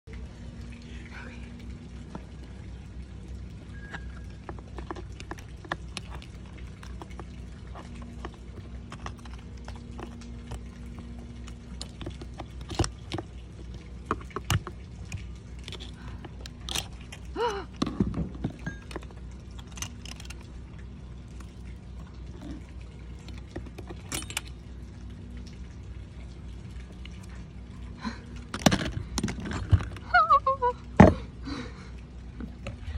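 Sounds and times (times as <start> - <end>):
low background hum: 0.0 - 32.9
metal tools clicking on winch: 23.3 - 24.6.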